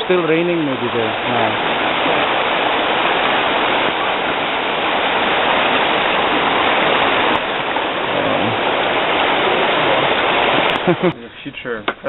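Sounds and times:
flooded river rushing: 0.0s - 11.2s.

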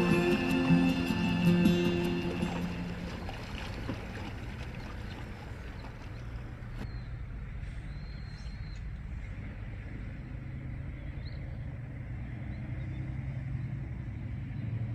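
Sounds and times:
background music: 0.0s - 3.4s
car driving rumble: 0.0s - 14.9s.

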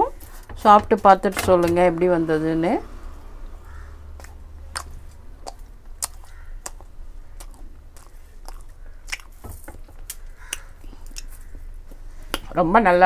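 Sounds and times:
low steady hum: 0.0s - 13.0s
mouth clicks and smacks: 4.2s - 12.5s
person chewing food: 4.2s - 12.5s.

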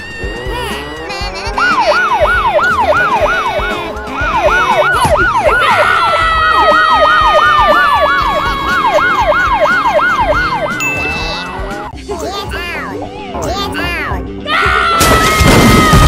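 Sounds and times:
siren yelping: 1.5s - 11.9s
long falling tone: 1.8s - 11.9s.

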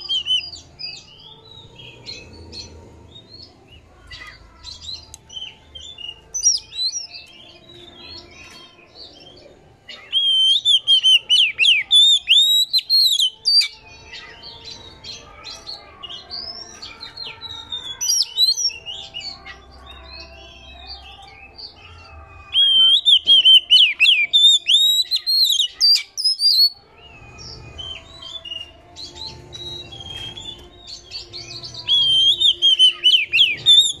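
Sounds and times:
bird singing whistled phrases: 0.0s - 0.6s, 9.9s - 14.3s, 22.5s - 28.8s, 29.6s - 34.0s
bird chattering song: 0.0s - 34.0s.

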